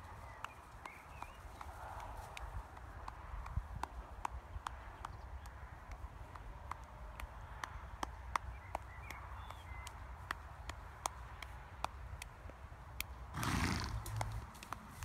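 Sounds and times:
light sharp ticks: 0.0 - 15.0
wind rumble on microphone: 0.0 - 15.0.

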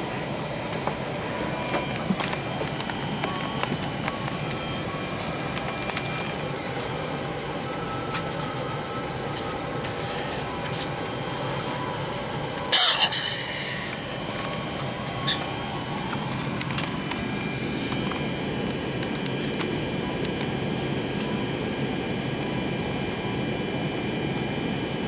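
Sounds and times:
faint steady tones: 0.0 - 25.0
ventilation hum: 0.0 - 25.0
scattered clicks: 1.7 - 4.7, 5.5 - 6.8, 15.4 - 20.6.

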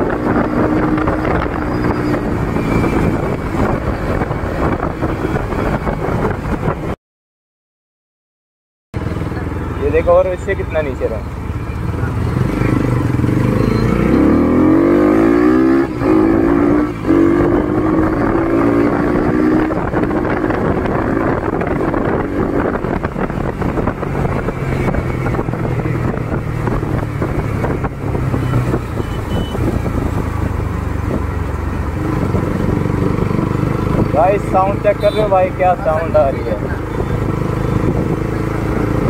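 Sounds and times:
motorcycle engine revving: 0.0 - 6.8, 9.0 - 39.0
wind and road noise: 0.0 - 7.0, 9.0 - 39.0.

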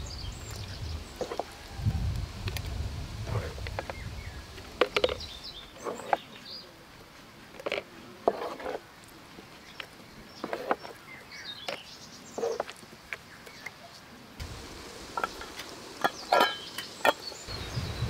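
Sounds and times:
small birds chirping: 0.0 - 1.5, 3.8 - 6.8, 8.8 - 18.0.

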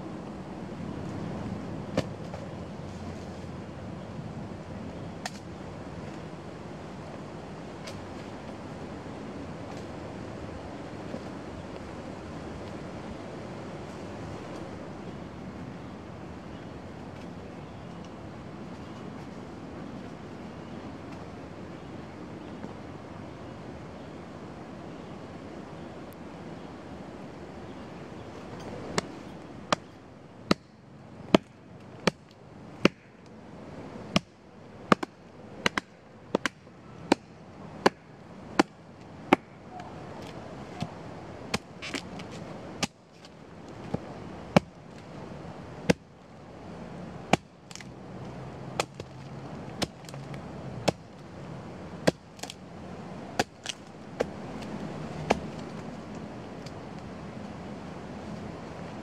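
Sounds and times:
blade chopping into tree stump: 52.0 - 52.6.

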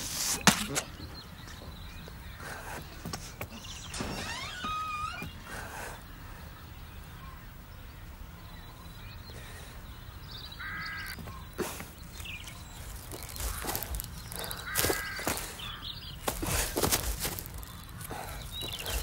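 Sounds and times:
crow cawing: 10.5 - 11.7, 13.0 - 19.0
leaves and twigs crackling: 10.6 - 19.0.

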